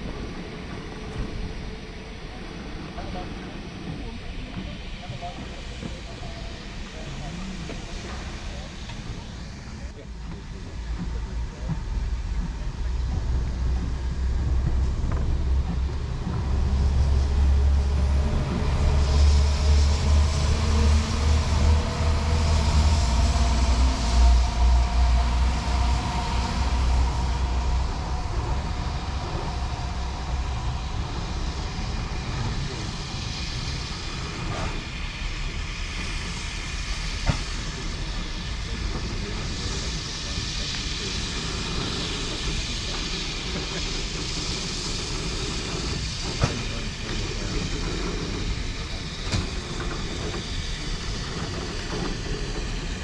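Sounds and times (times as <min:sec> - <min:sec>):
steam locomotive rumbling: 0:00.0 - 0:53.0
drawn-out whistle tones: 0:16.0 - 0:53.0.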